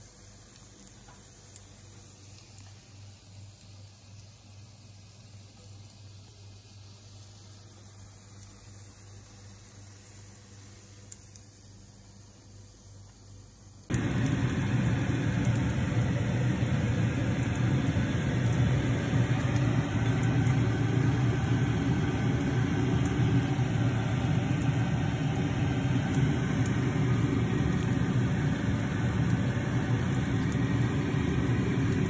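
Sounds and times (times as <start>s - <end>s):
fan humming: 13.9s - 32.0s.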